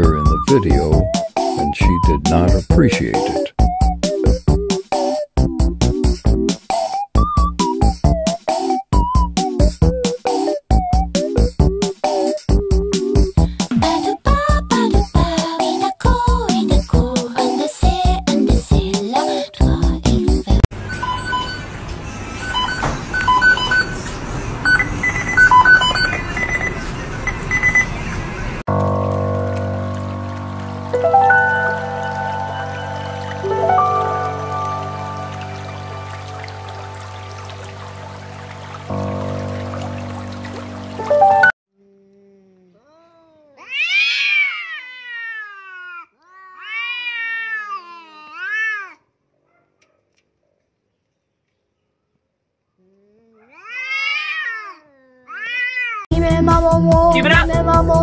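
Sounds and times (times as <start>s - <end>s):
electronic beeps tune: 24.7s - 27.9s
cats yowling: 43.5s - 49.0s, 53.3s - 56.1s.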